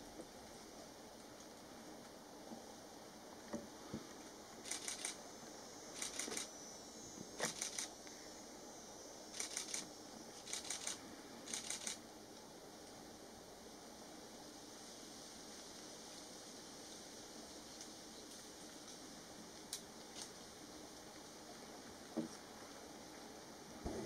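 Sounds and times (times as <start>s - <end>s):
camera shutter bursts: 4.6s - 5.2s, 6.0s - 6.5s, 7.4s - 7.9s, 9.3s - 12.0s.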